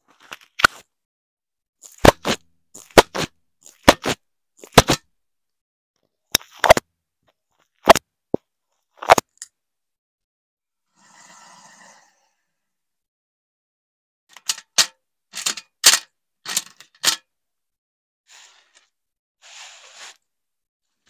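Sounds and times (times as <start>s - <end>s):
foam toys being squeezed: 1.8s - 5.0s.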